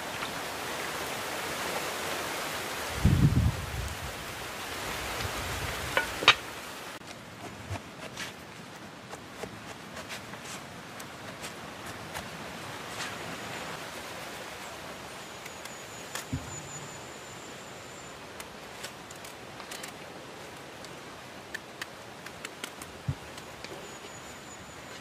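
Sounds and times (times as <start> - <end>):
steady outdoor hiss: 0.0 - 25.0
knife cutting and peeling fruit: 7.1 - 13.2
faint high whistle: 15.2 - 18.2, 23.7 - 25.0.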